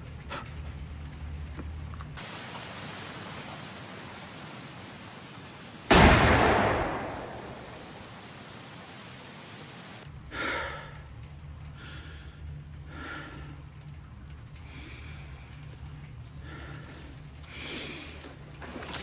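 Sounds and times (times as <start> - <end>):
low steady hum: 0.0 - 19.0
man breathing heavily: 10.2 - 18.5.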